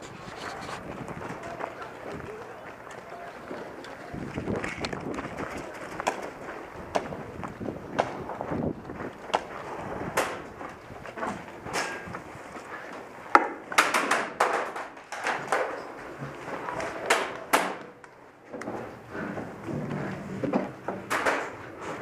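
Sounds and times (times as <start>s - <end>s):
footsteps on dirt and wood: 0.0s - 13.7s.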